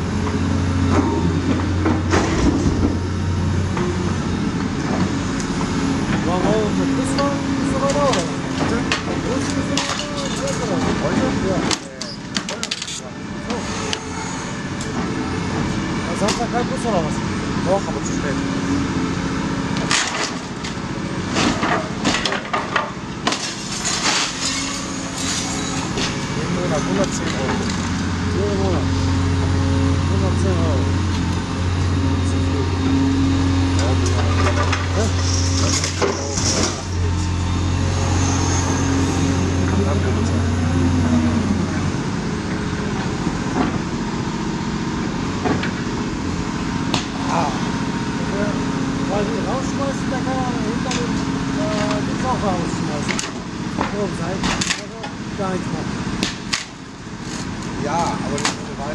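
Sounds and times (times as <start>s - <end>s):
excavator diesel engine: 0.0s - 58.9s
excavator grab tearing roof: 21.3s - 26.2s, 34.0s - 37.1s.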